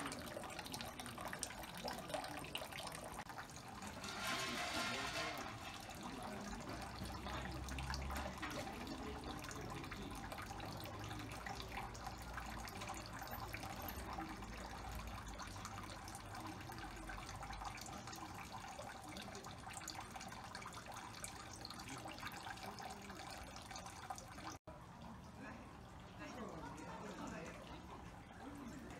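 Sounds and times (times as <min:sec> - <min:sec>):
water trickling into stone basin: 0:00.0 - 0:28.9.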